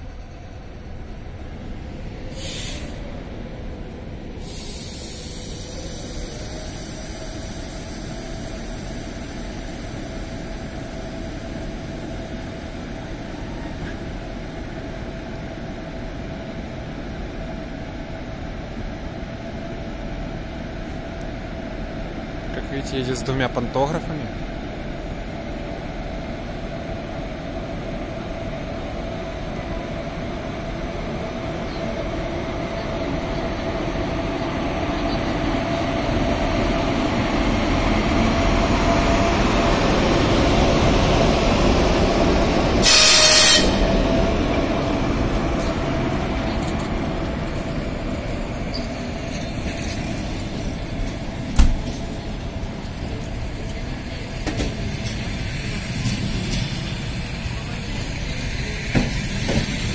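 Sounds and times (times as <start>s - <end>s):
train wheels rumbling on rails: 0.0s - 59.9s
loud hiss: 2.3s - 3.0s, 4.4s - 10.6s, 42.8s - 43.8s.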